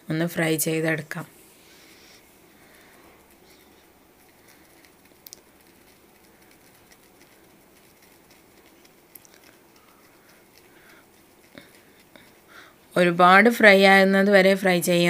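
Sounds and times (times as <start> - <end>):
spatula stirring: 1.8 - 12.7.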